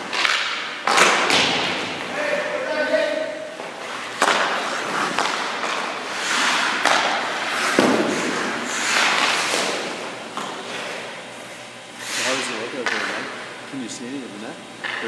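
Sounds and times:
skate blades scraping ice: 3.6 - 13.4.

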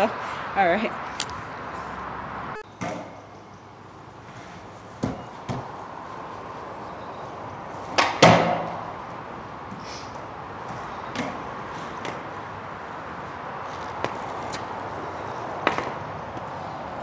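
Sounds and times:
skateboard wheels rolling on concrete: 0.0 - 17.0
skateboard cracking on concrete: 15.6 - 16.0.

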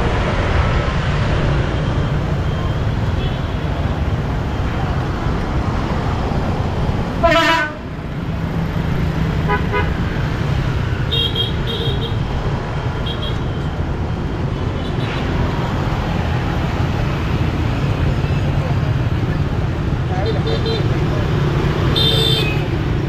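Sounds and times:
street traffic rumble: 0.0 - 23.0
vehicle horn honk: 7.2 - 7.8.

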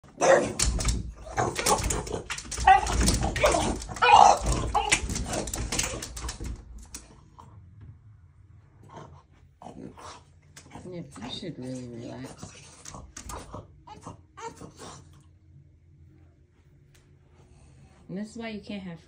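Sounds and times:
paws scrabbling on glass door: 0.1 - 7.2, 10.6 - 13.6
dog whining: 2.6 - 5.1.

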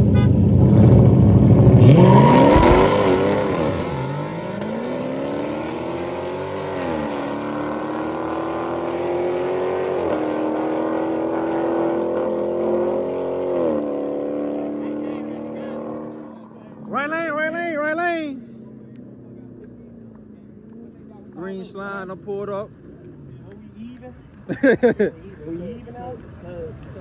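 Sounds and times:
car engines racing at full throttle: 0.0 - 27.0.

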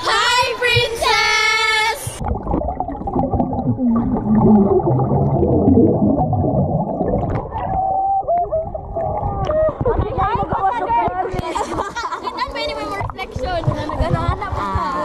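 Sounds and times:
muffled underwater water noise: 2.0 - 15.0
muffled voices under water: 7.5 - 15.0.

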